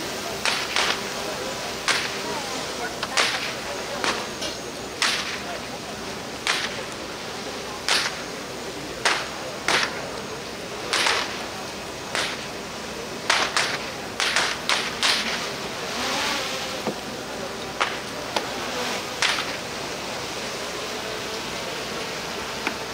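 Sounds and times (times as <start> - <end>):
rush of flames: 0.0 - 22.9
fire cracking and popping: 0.3 - 1.1, 1.8 - 2.3, 3.0 - 5.8, 6.4 - 7.1, 7.8 - 8.4, 10.8 - 12.6, 13.3 - 15.6, 19.2 - 19.7.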